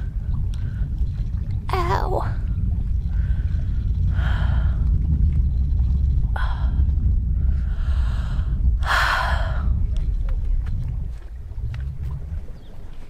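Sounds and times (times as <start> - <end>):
wind buffeting the microphone: 0.0 - 13.0
person breathing heavily: 6.4 - 9.8.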